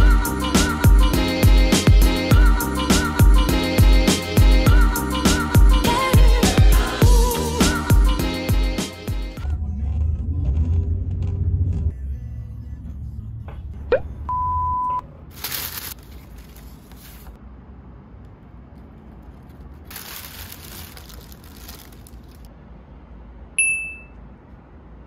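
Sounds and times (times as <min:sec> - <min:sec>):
paper and plastic rustling: 0:15.3 - 0:17.4, 0:18.7 - 0:22.5
short bright ding: 0:23.6 - 0:24.2.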